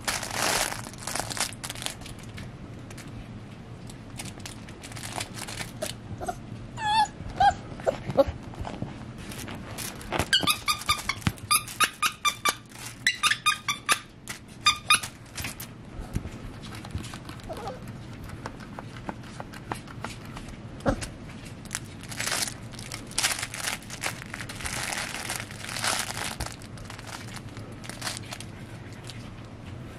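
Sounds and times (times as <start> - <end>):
puppy whimpering: 5.8 - 8.4, 17.4 - 17.9
puppy squeaking: 6.2 - 8.4, 10.3 - 15.2.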